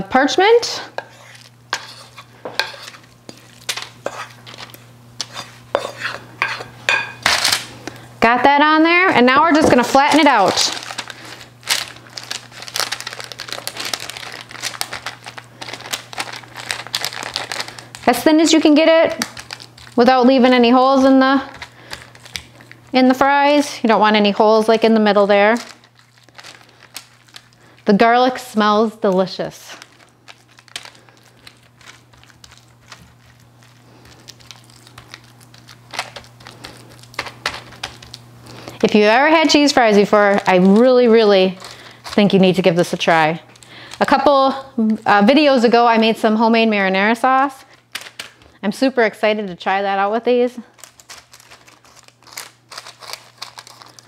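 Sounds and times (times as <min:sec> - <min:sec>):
wooden spoon scraping dough: 0:00.8 - 0:06.8
parchment paper crinkling: 0:09.4 - 0:46.0, 0:50.6 - 0:54.0.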